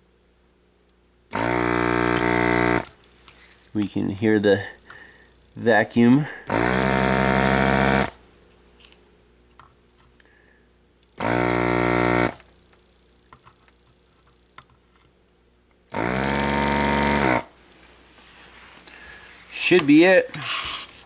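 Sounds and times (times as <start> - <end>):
desoldering vacuum pump: 1.3 - 3.0, 6.4 - 8.2, 11.1 - 12.5, 15.9 - 17.6.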